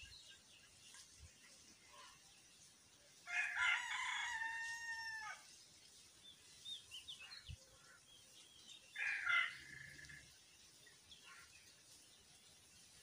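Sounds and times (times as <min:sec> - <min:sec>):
rooster crowing: 0:03.3 - 0:05.4.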